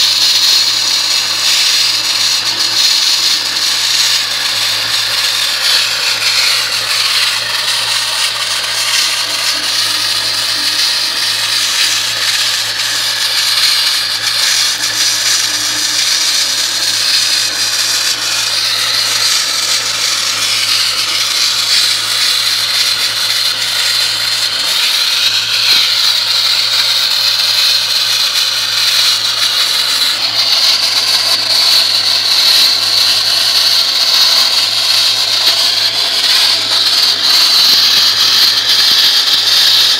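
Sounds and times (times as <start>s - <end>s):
wet-blasting nozzle hissing on metal: 0.0s - 39.9s.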